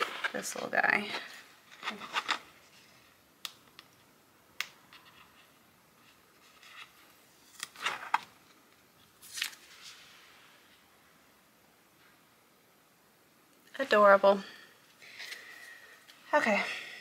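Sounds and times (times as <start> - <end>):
paper rustling: 9.2 - 10.2.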